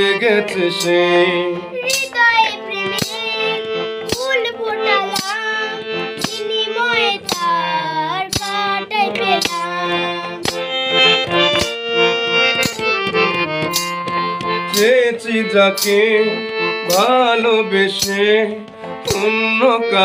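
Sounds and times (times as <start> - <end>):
harmonium chords: 0.0 - 20.0
sharp percussive beat: 0.0 - 20.0
child singing: 1.6 - 10.6.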